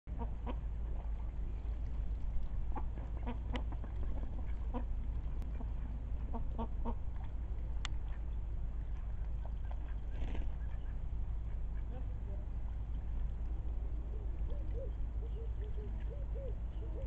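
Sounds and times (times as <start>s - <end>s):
chickens clucking: 0.1s - 1.2s, 2.6s - 7.3s
steady low rumble: 0.1s - 17.0s.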